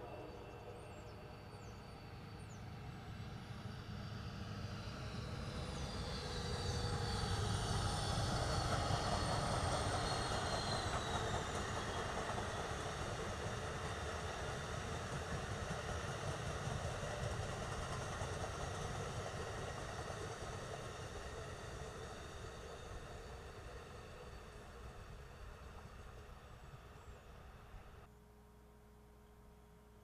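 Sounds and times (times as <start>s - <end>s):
passing train rumble: 0.0s - 28.1s.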